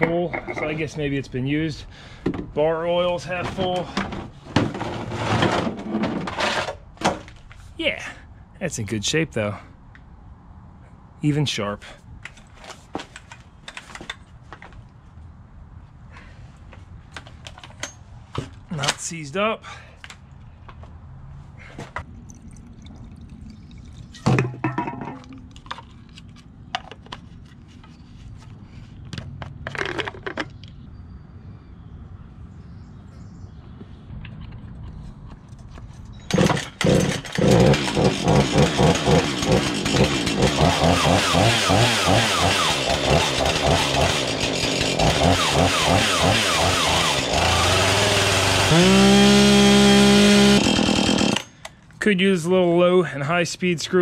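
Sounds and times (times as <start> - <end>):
chainsaw revving: 36.3 - 51.5.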